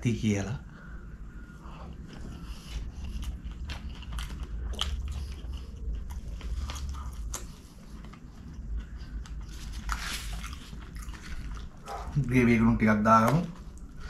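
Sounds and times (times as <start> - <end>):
person chewing with mouth clicks: 1.9 - 12.2.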